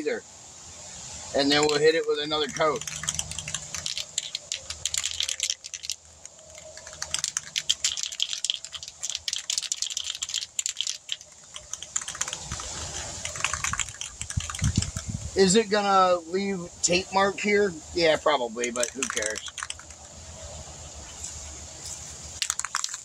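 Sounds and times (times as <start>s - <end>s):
spray can ball rattling: 1.5s - 15.3s, 18.6s - 20.2s, 22.3s - 23.0s.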